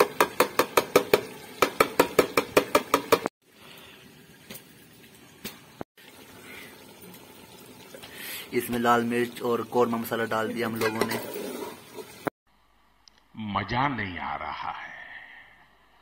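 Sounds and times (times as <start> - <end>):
faint frying hiss: 3.4 - 10.1
metal spoon scraping pot: 10.6 - 12.2.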